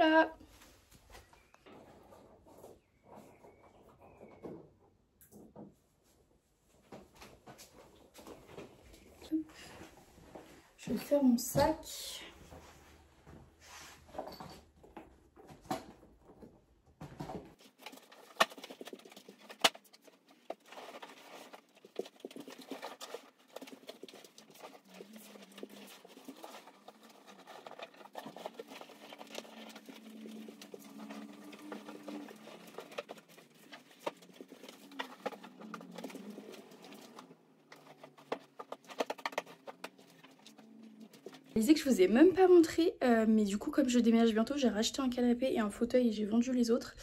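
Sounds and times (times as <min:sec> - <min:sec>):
bedding rustling: 0:12.4 - 0:42.2.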